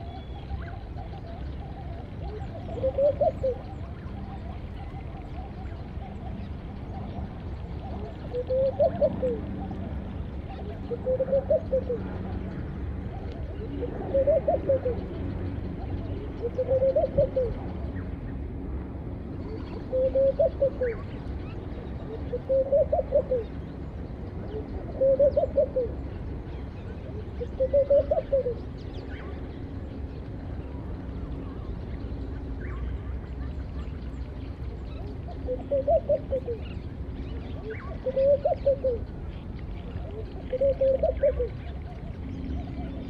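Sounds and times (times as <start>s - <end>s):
dove cooing: 0.0s - 15.2s, 15.8s - 17.9s, 19.5s - 21.2s, 22.0s - 23.6s, 24.4s - 28.6s, 34.8s - 39.1s, 39.8s - 43.0s
low background rumble: 0.0s - 43.0s.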